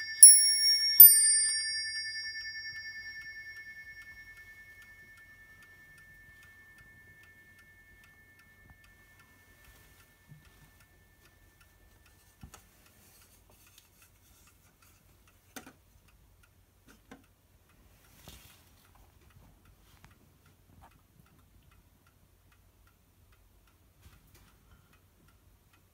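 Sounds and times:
clock chime ringing: 0:00.0 - 0:12.0
pendulum clock ticking: 0:00.0 - 0:25.9.

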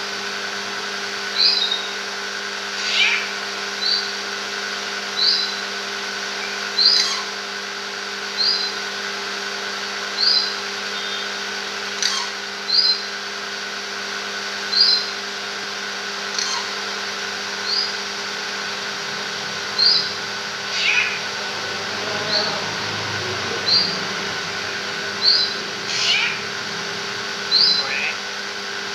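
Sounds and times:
steady hum: 0:14.7 - 0:28.9.

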